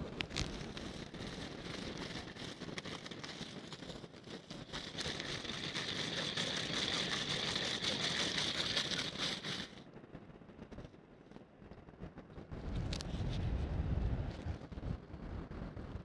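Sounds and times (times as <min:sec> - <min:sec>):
wind noise: 0:00.0 - 0:16.0
reel gears whirring and ticking: 0:00.2 - 0:09.8.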